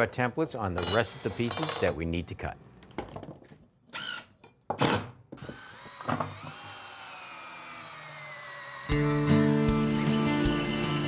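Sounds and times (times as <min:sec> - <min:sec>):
cordless drill driving screws: 0:05.4 - 0:09.7.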